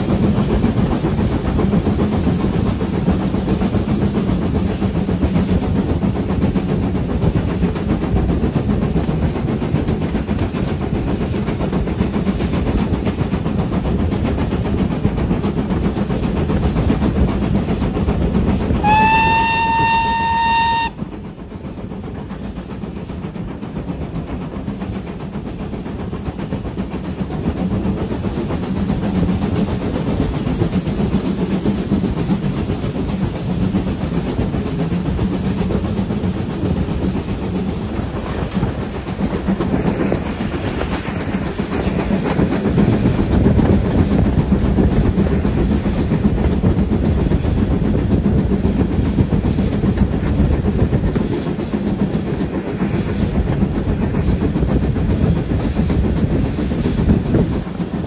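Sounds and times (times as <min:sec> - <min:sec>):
train carriages running on rails: 0:00.0 - 0:58.0
steam locomotive whistle: 0:18.8 - 0:21.2.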